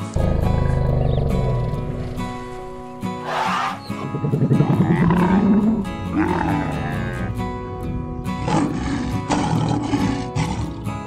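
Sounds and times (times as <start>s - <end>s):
background music: 0.0s - 11.0s
camel calling: 3.2s - 7.4s
lion calling: 3.2s - 7.5s.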